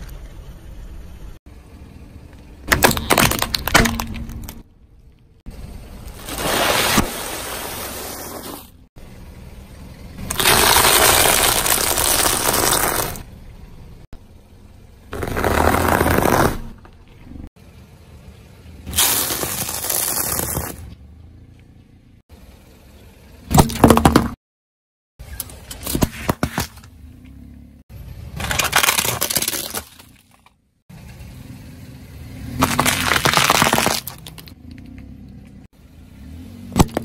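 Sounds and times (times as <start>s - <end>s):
tyre crushing plastic cracks: 2.7s - 4.6s, 28.4s - 30.5s, 32.6s - 34.6s
tyre crunching snack pieces: 10.3s - 13.2s, 28.4s - 30.5s, 32.6s - 34.9s.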